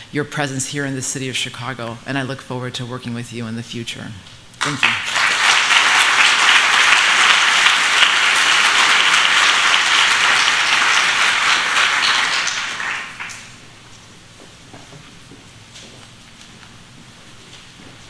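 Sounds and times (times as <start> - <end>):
audience applauding: 4.6 - 13.6.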